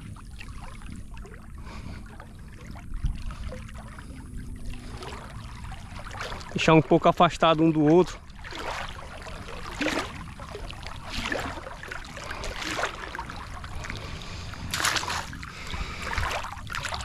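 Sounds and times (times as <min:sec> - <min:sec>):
soft water splashing: 0:00.0 - 0:17.0
net splashing into water: 0:08.4 - 0:13.7, 0:14.7 - 0:17.0.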